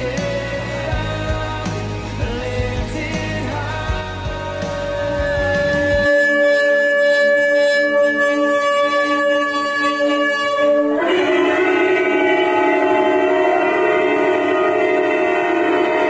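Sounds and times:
ram's horn blasts through speakers: 5.0 - 16.0.

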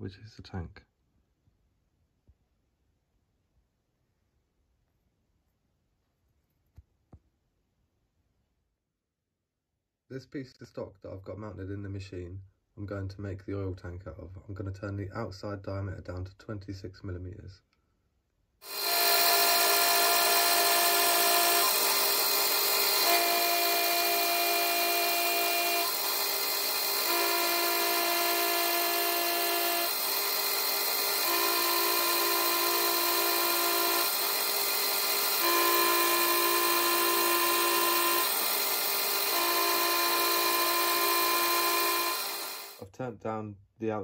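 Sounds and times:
cutting tool on brass bar: 18.6 - 42.8
lathe whining: 18.6 - 42.8.

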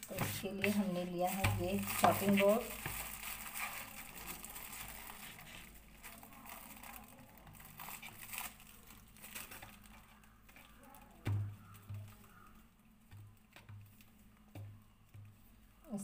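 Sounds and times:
hands rolling dough on wooden board: 0.0 - 3.8.

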